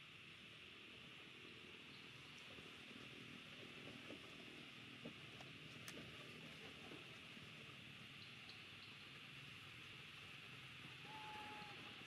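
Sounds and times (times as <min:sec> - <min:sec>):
high background hiss: 0:00.0 - 0:12.0
faint ticks: 0:01.9 - 0:07.3, 0:08.2 - 0:09.2.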